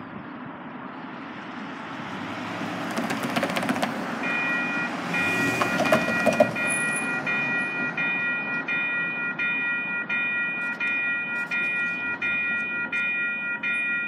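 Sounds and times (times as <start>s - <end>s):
light-rail train rumbling: 2.6s - 4.2s
level crossing warning bell: 4.2s - 14.0s.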